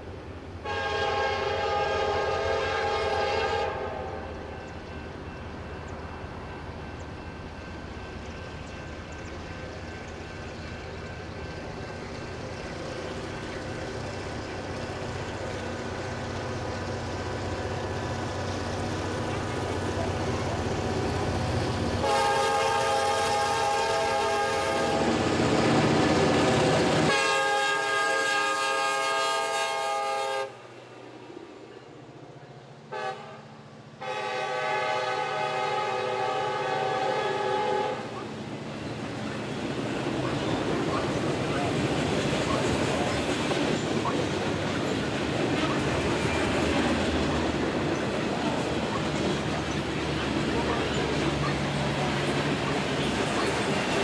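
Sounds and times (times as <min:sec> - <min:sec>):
diesel locomotive engine rumble: 0:00.0 - 0:54.0
locomotive horn blasts: 0:00.6 - 0:04.3, 0:22.0 - 0:25.2, 0:27.0 - 0:30.6, 0:32.9 - 0:33.4, 0:34.0 - 0:38.1.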